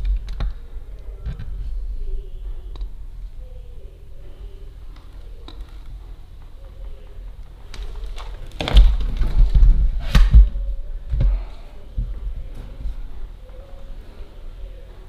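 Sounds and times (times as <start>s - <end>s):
knocks and heavy thumps: 8.5s - 13.2s.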